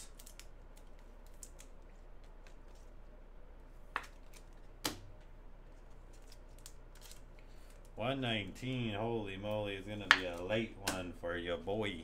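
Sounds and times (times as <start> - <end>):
plastic and card rustling: 0.0 - 3.0, 4.0 - 4.8, 5.6 - 8.0.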